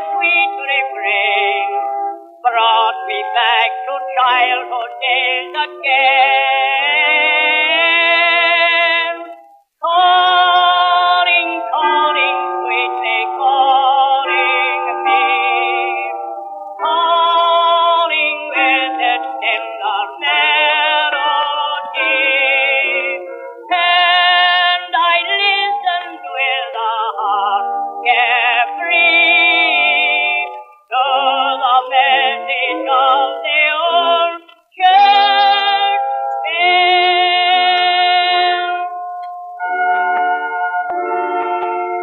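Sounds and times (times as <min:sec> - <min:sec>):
tinny old instrumental recording: 0:00.0 - 0:42.0.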